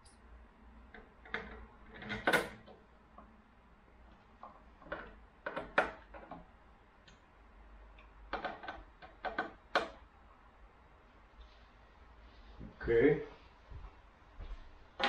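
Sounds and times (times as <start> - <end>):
plastic parts clicking and tapping: 4.4 - 6.4, 8.0 - 10.0.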